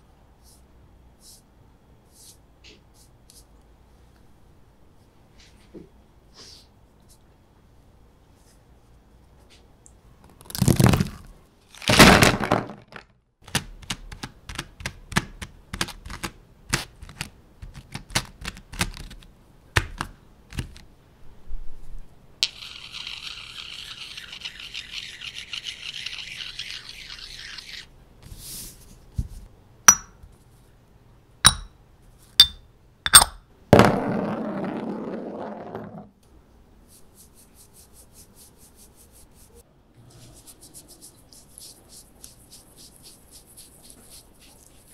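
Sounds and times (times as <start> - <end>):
scrape: 0.4 - 1.5, 2.1 - 3.5, 5.3 - 5.7, 6.3 - 7.2, 22.8 - 29.5, 36.9 - 44.9.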